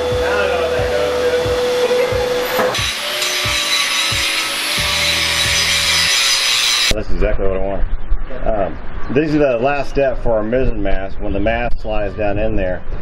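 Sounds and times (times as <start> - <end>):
angle grinder grinding steel: 0.0 - 6.9
music with steady beat: 0.0 - 6.9.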